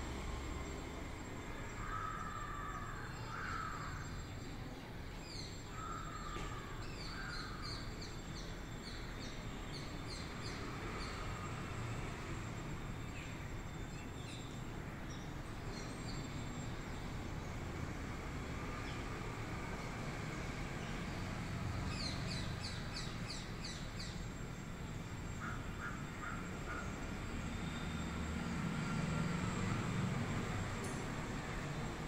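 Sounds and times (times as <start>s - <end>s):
crow cawing: 1.8s - 4.0s, 25.4s - 26.9s.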